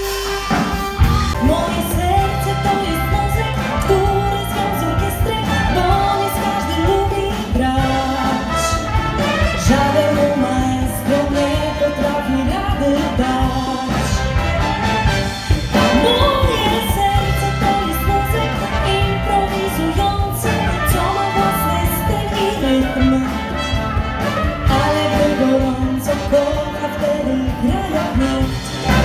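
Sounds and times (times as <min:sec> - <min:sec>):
horn section: 0:00.0 - 0:29.0
live rock band: 0:00.0 - 0:29.0
woman singing: 0:01.4 - 0:14.2, 0:15.8 - 0:23.8, 0:24.6 - 0:29.0.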